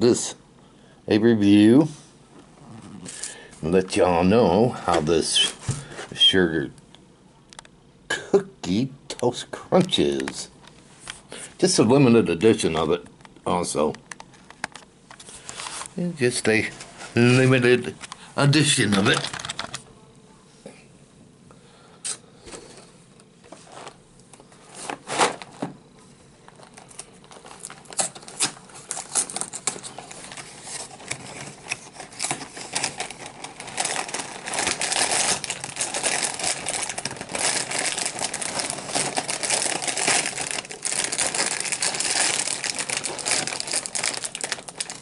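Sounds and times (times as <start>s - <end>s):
plastic bag crinkling: 26.4s - 45.0s.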